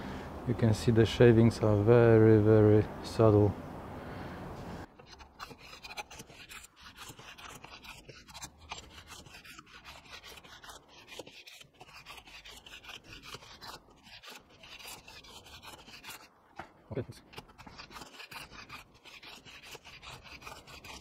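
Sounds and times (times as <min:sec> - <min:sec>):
hand plane shaving wood: 0:04.9 - 0:16.3, 0:17.2 - 0:21.0.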